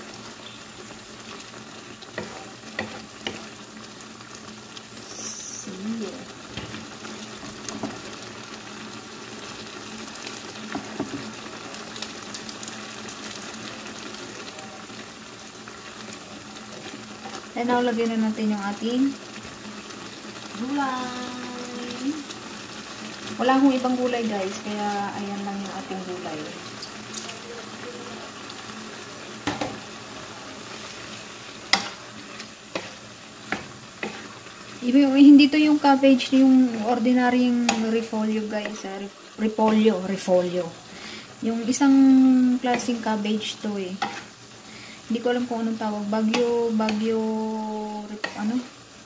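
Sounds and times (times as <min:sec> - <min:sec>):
noodles and broth simmering: 0:00.0 - 0:49.0
wooden spatula stirring noodles: 0:30.5 - 0:38.9.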